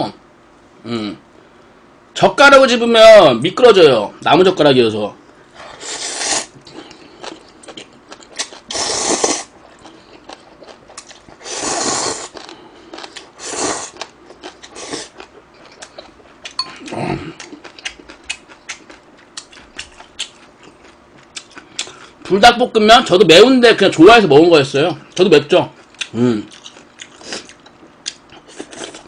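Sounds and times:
man slurping noodles: 0:05.7 - 0:06.5, 0:08.7 - 0:09.5, 0:11.4 - 0:12.3, 0:13.4 - 0:14.0
wet chewing and smacking: 0:06.6 - 0:08.7, 0:09.5 - 0:11.4, 0:13.9 - 0:22.3, 0:25.1 - 0:29.0.

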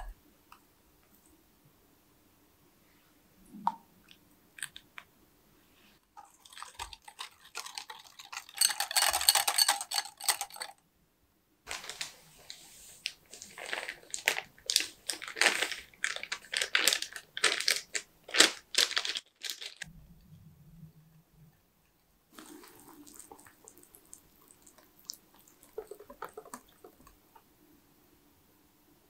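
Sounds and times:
plastic bag crinkling: 0:06.2 - 0:10.7, 0:11.7 - 0:19.9, 0:25.6 - 0:27.1.

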